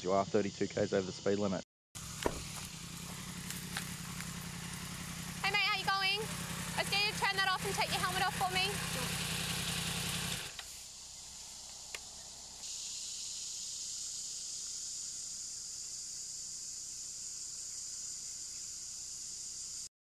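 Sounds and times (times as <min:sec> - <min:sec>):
high-pitched hiss: 0:00.0 - 0:06.0, 0:10.5 - 0:19.9
motorcycle engine idling: 0:02.0 - 0:10.8
click: 0:10.5 - 0:10.7.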